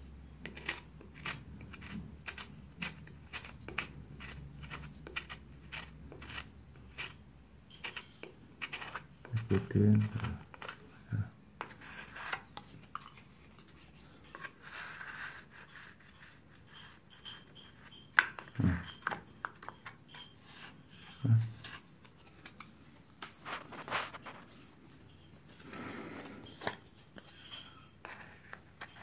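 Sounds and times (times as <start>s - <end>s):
putty knife scraping compound: 0.4s - 22.6s.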